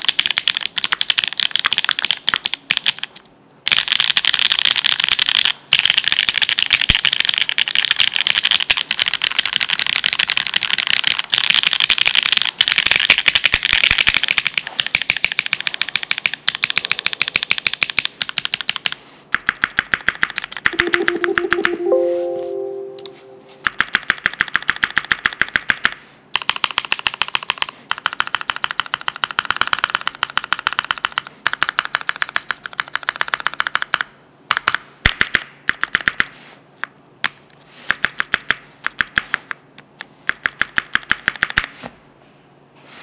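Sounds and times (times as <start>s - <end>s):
mechanical keyboard typing: 0.0s - 22.1s, 23.6s - 36.3s, 40.2s - 41.7s
music: 20.8s - 23.7s.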